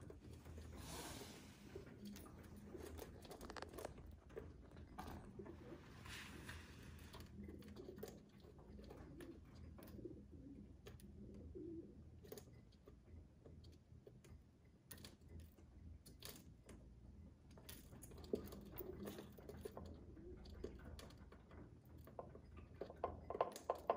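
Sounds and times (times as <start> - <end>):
beaks pecking on a ledge: 17.8 - 23.9.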